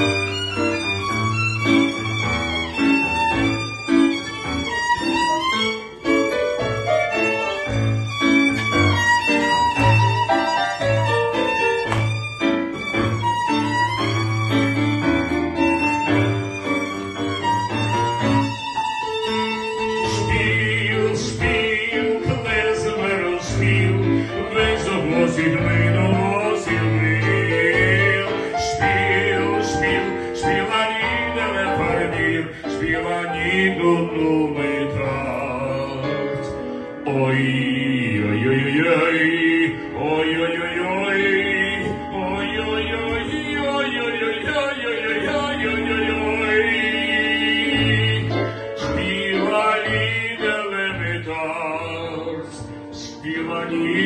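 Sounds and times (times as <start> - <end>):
violin passage: 0.0 - 54.0
man singing into a microphone: 19.9 - 54.0.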